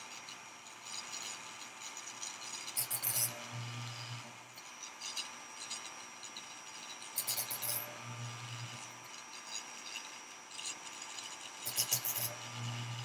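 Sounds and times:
small electric drill motor humming: 0.0s - 13.0s
drill bit rasping against plastic: 2.4s - 13.0s.

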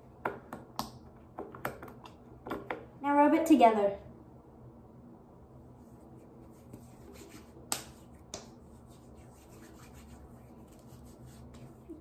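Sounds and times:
hands rubbing lotion swishing: 5.8s - 12.0s.

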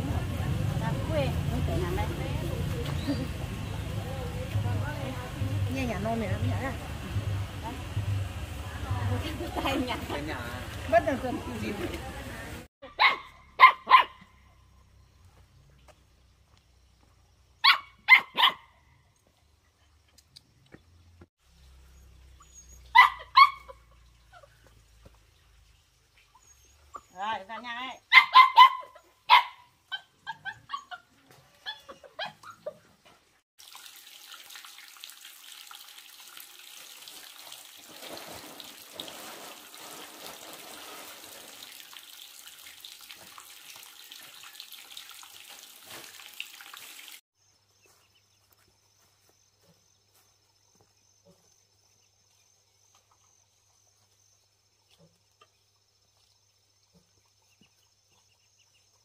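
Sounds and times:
water running: 0.0s - 12.7s, 33.6s - 47.2s
dog barking: 12.8s - 14.3s, 17.6s - 18.7s, 22.9s - 23.8s, 28.1s - 31.0s.

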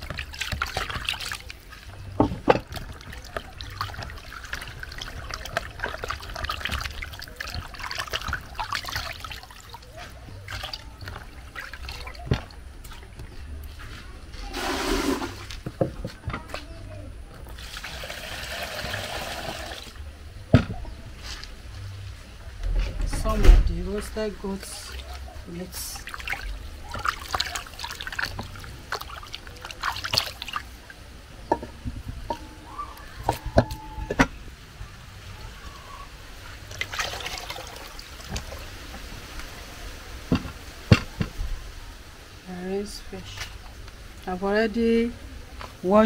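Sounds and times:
water running and splashing: 0.0s - 15.8s, 17.3s - 20.1s, 24.0s - 46.0s
pot knocking: 31.5s - 32.4s.

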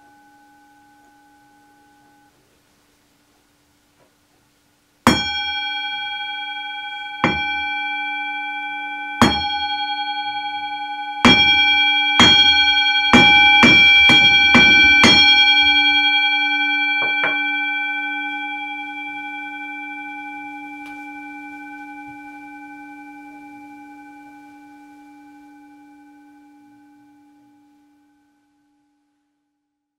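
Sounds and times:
singing bowl struck with mallet: 5.1s - 19.7s.

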